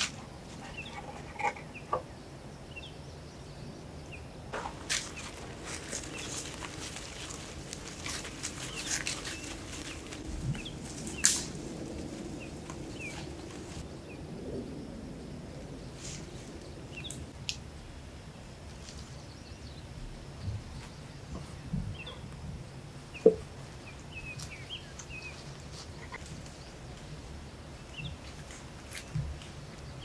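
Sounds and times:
footsteps in dry leaves: 0:04.6 - 0:13.9
sharp crack: 0:10.5 - 0:13.8.

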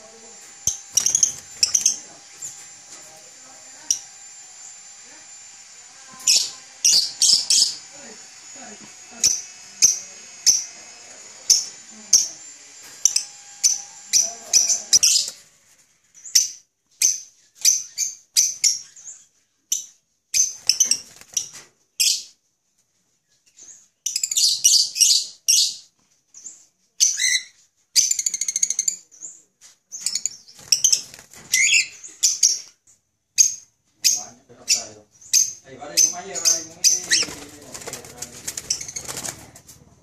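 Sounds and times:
parrots chattering: 0:00.0 - 0:15.4, 0:30.0 - 0:32.7, 0:33.4 - 0:39.6
parrots chirping shrilly: 0:00.6 - 0:02.6, 0:06.2 - 0:07.9, 0:13.1 - 0:15.4, 0:20.4 - 0:22.3, 0:24.1 - 0:25.9, 0:27.0 - 0:29.0, 0:30.0 - 0:32.7, 0:33.4 - 0:37.8, 0:38.4 - 0:39.4.

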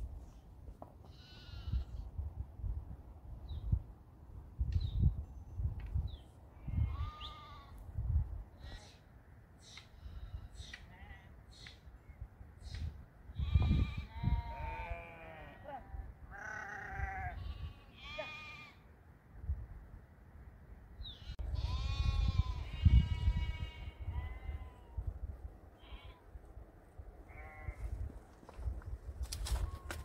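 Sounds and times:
sheep bleating: 0:06.6 - 0:07.8, 0:13.4 - 0:18.8, 0:27.3 - 0:27.9.

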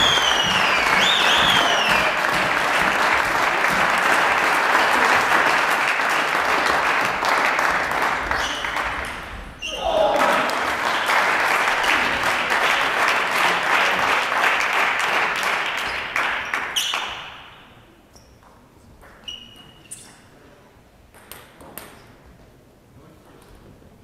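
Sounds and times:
spectators applauding: 0:00.0 - 0:17.3.

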